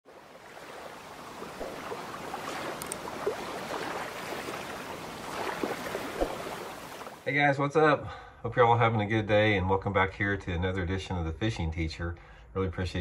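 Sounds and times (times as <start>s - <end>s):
waves lapping on rocky shore: 0.0s - 7.2s
faint high ticks: 2.6s - 3.1s.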